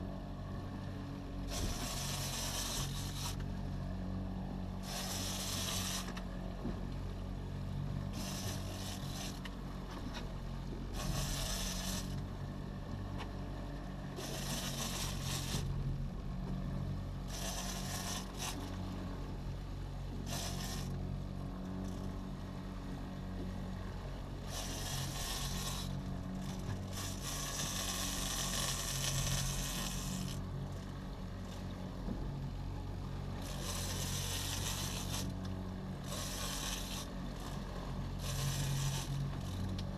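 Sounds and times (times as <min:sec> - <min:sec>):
boat engine running: 0:00.0 - 0:39.9
rasping scraping noise: 0:01.5 - 0:03.4, 0:04.8 - 0:06.2, 0:08.1 - 0:09.4, 0:10.9 - 0:12.2, 0:14.2 - 0:15.7, 0:17.3 - 0:18.7, 0:20.2 - 0:21.0, 0:24.4 - 0:30.4, 0:33.4 - 0:35.4, 0:36.0 - 0:37.6, 0:38.2 - 0:39.8.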